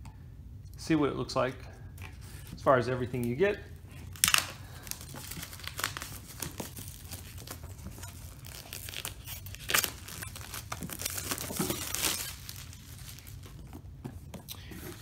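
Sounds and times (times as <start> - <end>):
plastic wrap crinkling: 3.1 - 15.0
plastic wrap ripping: 4.0 - 13.7.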